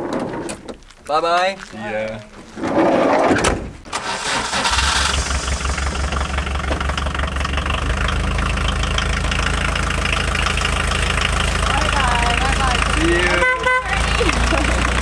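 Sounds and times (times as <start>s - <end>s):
sliding door shutting: 2.6s - 5.2s
engine cranking and idling: 3.8s - 15.0s.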